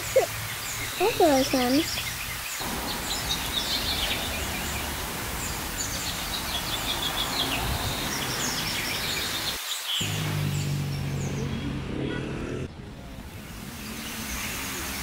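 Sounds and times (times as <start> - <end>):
city street traffic: 0.0 - 15.0
small birds chirping: 0.0 - 15.0.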